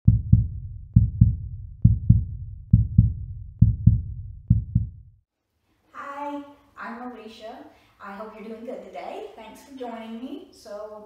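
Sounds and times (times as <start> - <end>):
deep double thumps like heartbeat: 0.0 - 5.2.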